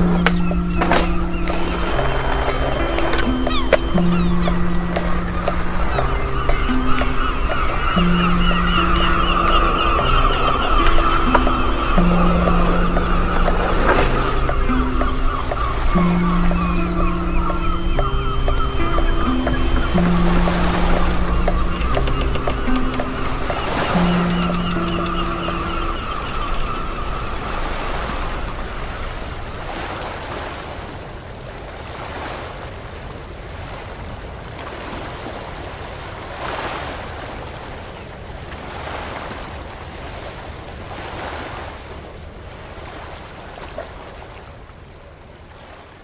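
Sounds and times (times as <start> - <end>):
ocean waves washing in: 0.0 - 46.0.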